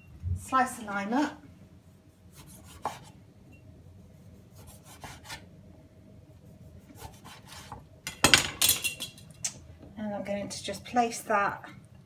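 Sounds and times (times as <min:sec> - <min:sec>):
knife slicing lime on wooden board: 0:02.3 - 0:03.2, 0:04.5 - 0:05.4, 0:06.9 - 0:07.8.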